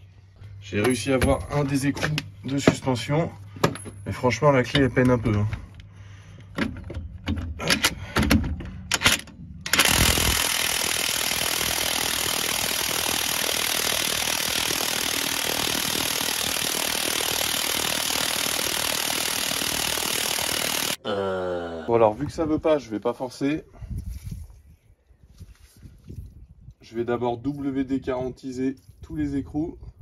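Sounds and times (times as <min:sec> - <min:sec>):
impact wrench hammering: 0:06.6 - 0:21.0.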